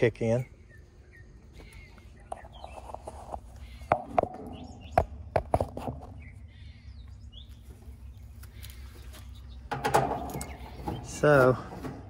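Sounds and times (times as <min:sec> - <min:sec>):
birds chirping faintly: 0:00.0 - 0:12.0
sharp clicks and knocks: 0:09.7 - 0:11.2.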